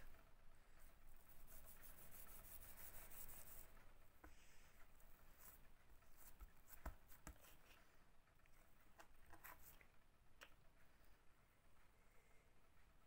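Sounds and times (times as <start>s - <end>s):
hands rubbing dough: 0.8s - 8.0s.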